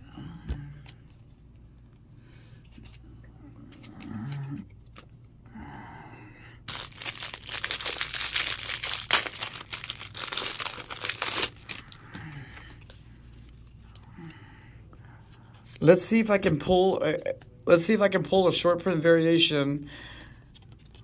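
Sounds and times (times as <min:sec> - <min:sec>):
plastic wrapper crinkling: 0:06.7 - 0:14.0
trading cards handled: 0:06.7 - 0:14.1, 0:20.4 - 0:21.0.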